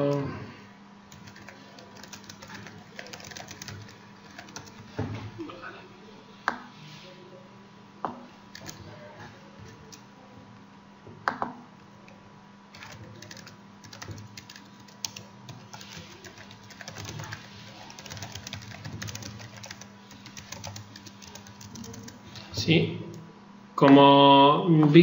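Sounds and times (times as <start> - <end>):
typing on computer keyboard: 1.1 - 5.0, 8.6 - 8.9, 12.8 - 22.3.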